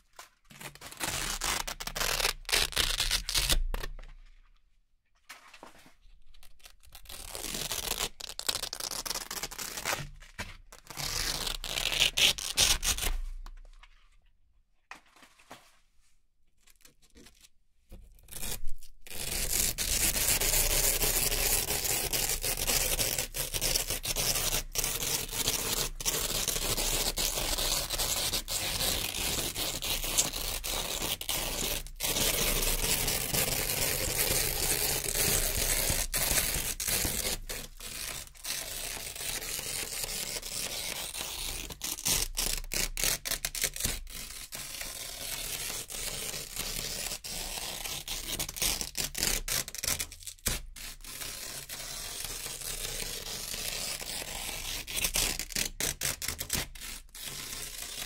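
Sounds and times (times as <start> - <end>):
velcro ripping: 0.5 - 4.0, 6.4 - 13.2, 18.3 - 58.0.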